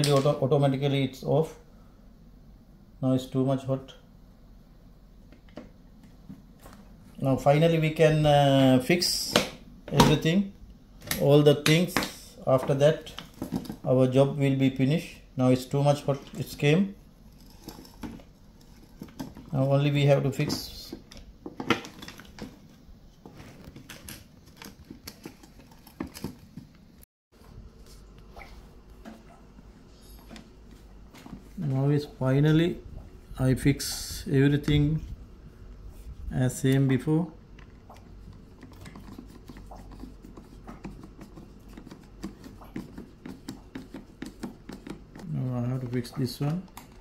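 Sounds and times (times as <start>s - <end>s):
plastic parts clicking and knocking: 17.4s - 19.6s, 23.6s - 26.9s, 37.5s - 47.0s.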